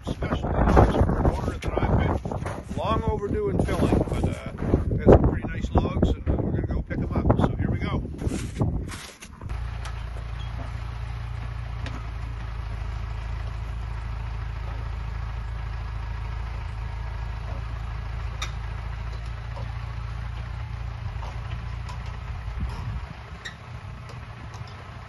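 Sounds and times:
tractor diesel engine running: 0:00.0 - 0:25.0
hydraulic crane lifting log: 0:08.4 - 0:25.0.

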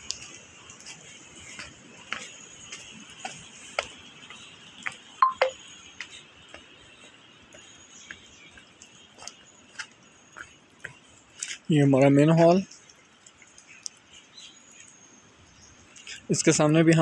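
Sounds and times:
faint hiss: 0:00.0 - 0:17.0
high chirp-like squeaks: 0:05.2 - 0:05.6
sharp clicks and ticks: 0:07.5 - 0:16.3.

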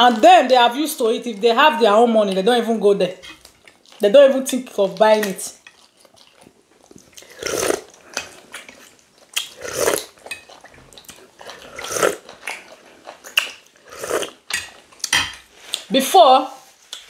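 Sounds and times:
chewing and sucking meat: 0:04.8 - 0:15.9
slurping soup from spoon: 0:07.2 - 0:12.8, 0:13.8 - 0:14.4.

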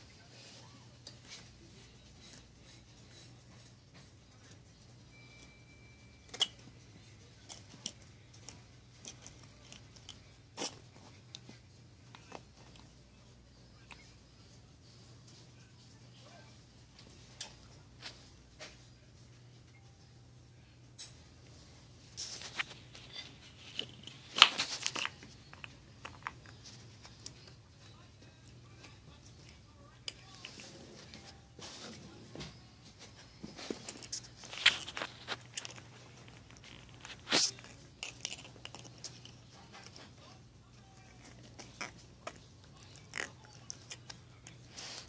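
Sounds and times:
puppy chewing plastic lid: 0:34.6 - 0:40.0.

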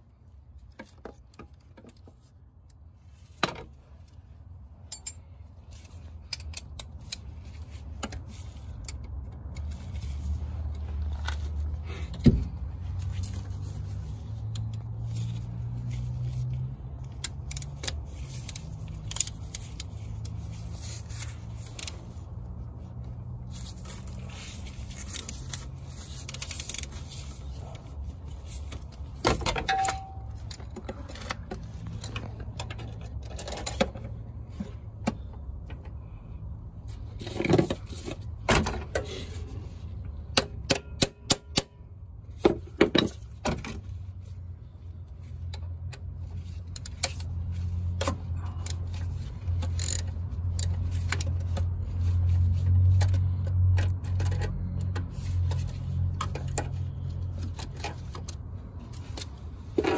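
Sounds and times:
low steady hum: 0:00.0 - 0:40.6
ratchet clicking: 0:17.0 - 0:20.7, 0:48.0 - 0:51.7.

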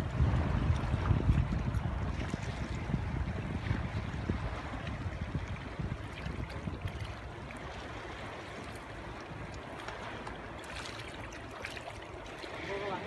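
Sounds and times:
wind buffeting microphone: 0:00.0 - 0:08.9
water lapping: 0:00.0 - 0:13.0.

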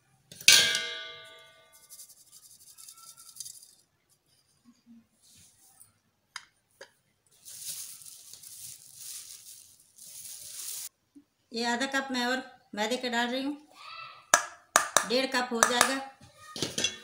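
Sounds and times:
flour sifting through sieve: 0:01.8 - 0:03.8, 0:07.3 - 0:10.9.

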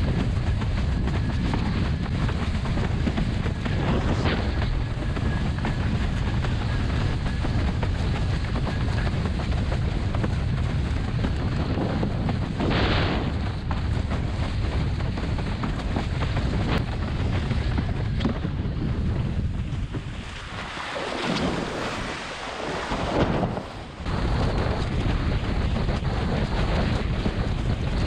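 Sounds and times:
board hull slapping waves: 0:00.0 - 0:28.0
wind buffeting microphone: 0:00.0 - 0:28.0
rushing water: 0:19.8 - 0:24.1.

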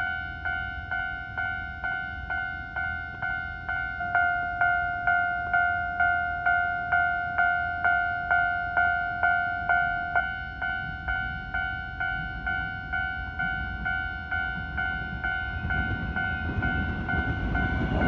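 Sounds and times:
level crossing warning bell: 0:00.0 - 0:18.0
train rumbling: 0:00.0 - 0:18.0.

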